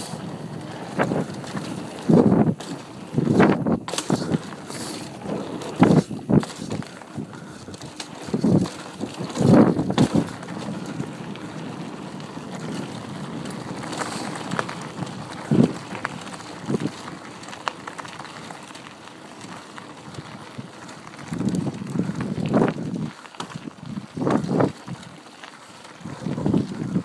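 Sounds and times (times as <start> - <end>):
wind on microphone: 0.0 - 11.6, 20.2 - 25.2, 26.0 - 27.0
bike thumps and rattles: 0.0 - 18.8, 20.8 - 27.0
bike tyre rumble on gravel: 0.0 - 27.0.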